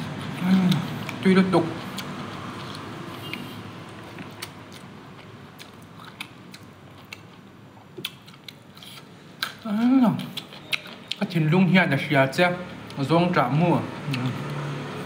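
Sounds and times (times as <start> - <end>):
close-up chewing: 0.0 - 11.2
wet mouth clicks and smacks: 10.2 - 11.2.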